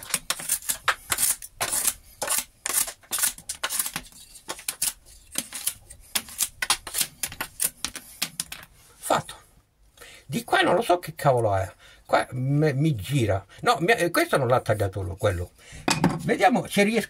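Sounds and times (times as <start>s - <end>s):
blade scraping shavings off wood: 0.0s - 8.4s.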